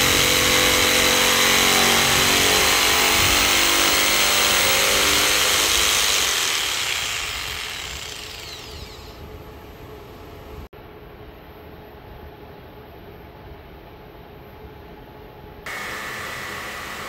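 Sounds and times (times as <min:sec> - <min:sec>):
jigsaw sawing wood: 0:00.0 - 0:09.2
motor winding down: 0:00.0 - 0:09.2.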